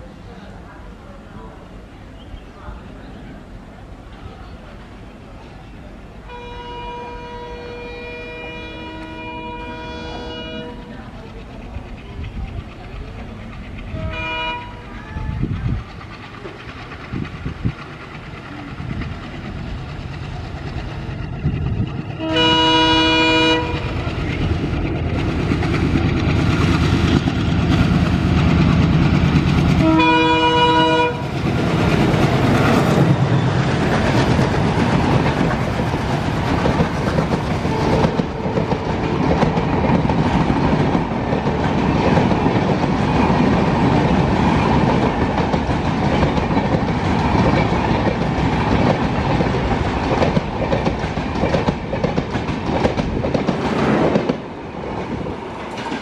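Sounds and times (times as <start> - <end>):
diesel locomotive engine: 0.0 - 56.0
train wheels rumbling on rail: 0.0 - 56.0
locomotive horn: 6.3 - 10.9, 13.9 - 15.4, 22.2 - 24.0, 29.8 - 31.3, 37.6 - 39.2.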